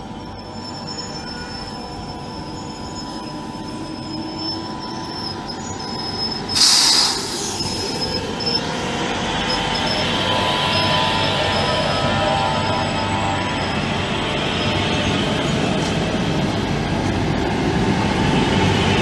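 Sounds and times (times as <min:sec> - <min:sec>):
train wheels squealing: 0:00.0 - 0:16.6
train rumble: 0:00.0 - 0:19.0
loud hiss: 0:06.5 - 0:08.0.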